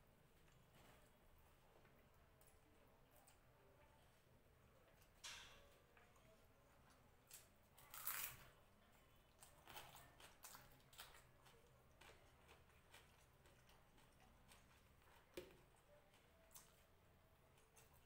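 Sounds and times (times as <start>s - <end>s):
soft chewing: 0.0s - 18.0s
fingers mixing food on plate: 9.3s - 18.0s.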